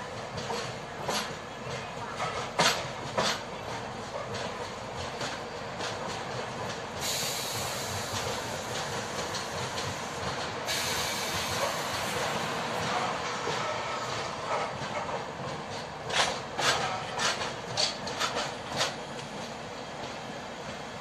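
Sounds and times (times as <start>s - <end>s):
train wheels rumbling on track: 0.0s - 21.0s
high hiss: 7.0s - 8.8s, 10.7s - 12.5s.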